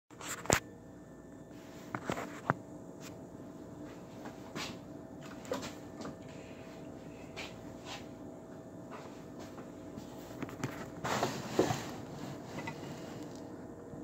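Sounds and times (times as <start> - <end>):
faint electrical hum: 0.1 - 14.0.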